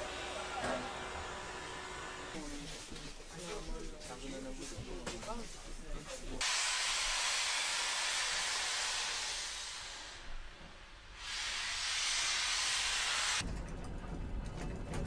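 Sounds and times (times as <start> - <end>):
steam locomotive venting steam: 6.4 - 13.4.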